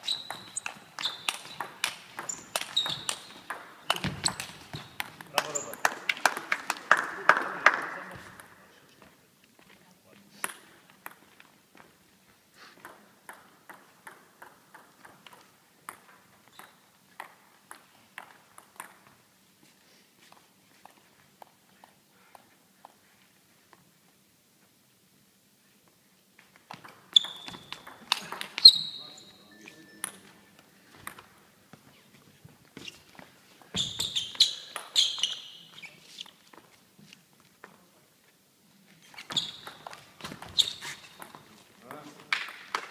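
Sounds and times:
sports shoes squeaking on floor: 0.0s - 5.9s, 15.0s - 17.1s, 26.7s - 37.1s, 38.9s - 41.7s
table tennis ball bouncing: 0.0s - 6.5s, 10.4s - 11.4s, 12.8s - 19.2s, 26.7s - 28.7s, 39.3s - 41.5s.

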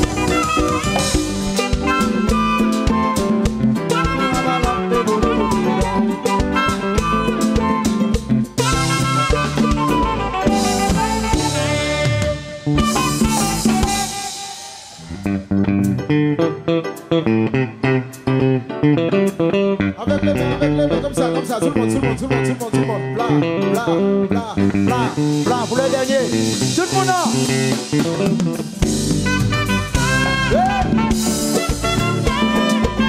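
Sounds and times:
drums: 0.0s - 16.6s, 24.7s - 33.0s
bass guitar: 0.0s - 33.0s
electric guitar solo: 0.0s - 33.0s.

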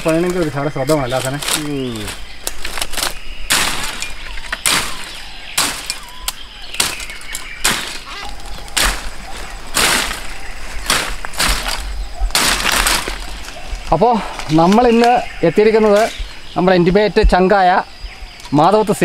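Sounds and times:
machete chopping bamboo: 2.5s - 13.3s.

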